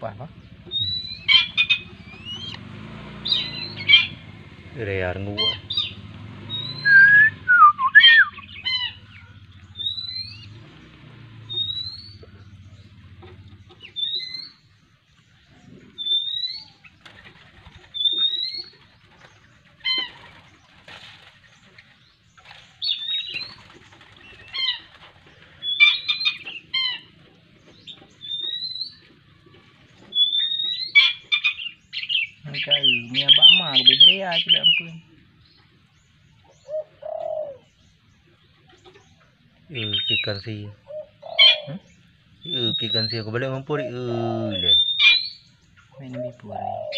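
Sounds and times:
raptor chick begging calls: 0:00.4 - 0:04.4, 0:05.3 - 0:10.8, 0:11.4 - 0:14.8, 0:15.4 - 0:21.3, 0:22.0 - 0:29.0, 0:30.0 - 0:35.6, 0:39.8 - 0:46.9
sharp chirps: 0:11.4 - 0:13.0.

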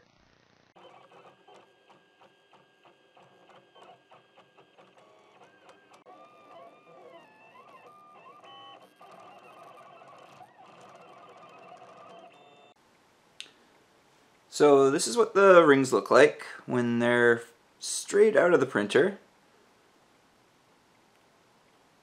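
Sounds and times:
stepper motors whining: 0:00.0 - 0:12.8.

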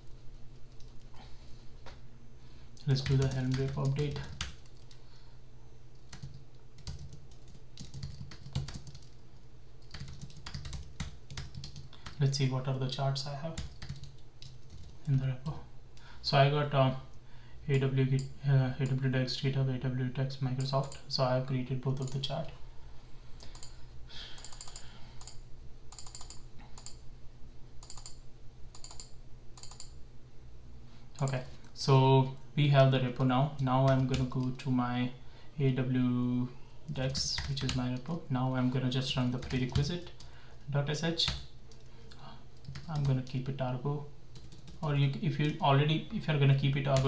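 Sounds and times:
computer keyboard typing: 0:00.7 - 0:01.0, 0:02.8 - 0:05.0, 0:05.9 - 0:09.2, 0:09.8 - 0:12.3, 0:13.6 - 0:15.2, 0:22.0 - 0:22.2, 0:23.4 - 0:23.8, 0:24.4 - 0:27.0, 0:27.8 - 0:30.0, 0:33.8 - 0:34.6, 0:37.1 - 0:37.8, 0:39.2 - 0:40.2, 0:42.6 - 0:43.4, 0:44.3 - 0:45.6.

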